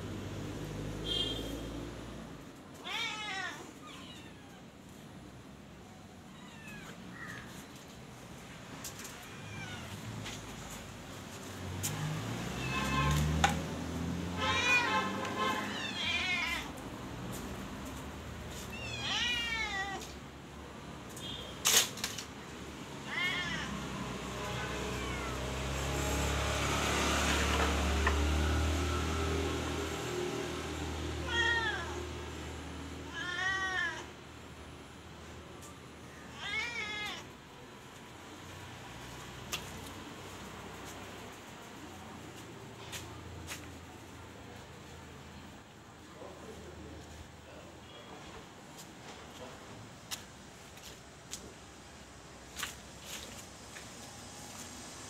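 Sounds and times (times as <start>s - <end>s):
kittens meowing: 2.8s - 4.7s, 6.3s - 7.6s, 15.7s - 16.7s, 18.7s - 20.2s, 24.5s - 25.6s.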